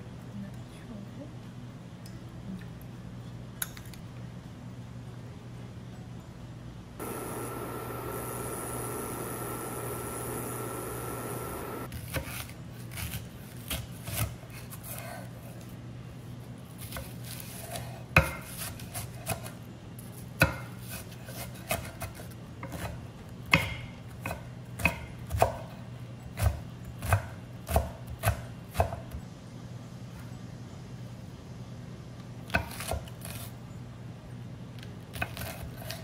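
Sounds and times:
knife chopping on wooden board: 17.7 - 19.5.

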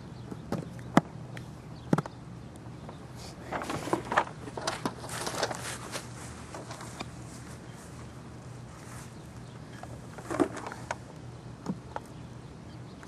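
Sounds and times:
faint low hum: 0.0 - 13.0
clicks and rustling: 3.4 - 7.6, 9.7 - 11.1.

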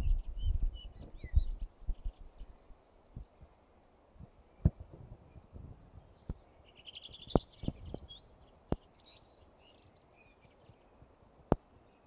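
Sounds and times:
songbird trilling and twittering: 0.0 - 2.6, 4.6 - 11.0.

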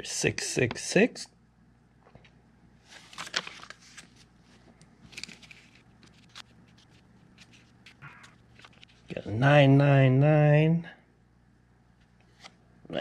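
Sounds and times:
paper bills rustling: 2.8 - 9.2.

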